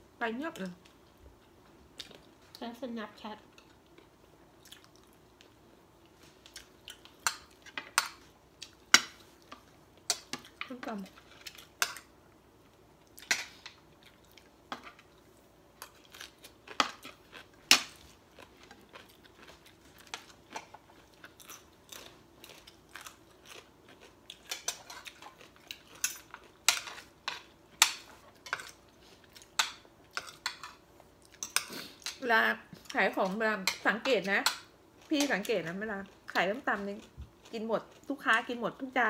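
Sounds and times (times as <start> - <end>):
chewing: 3.5 - 7.8, 13.0 - 27.5.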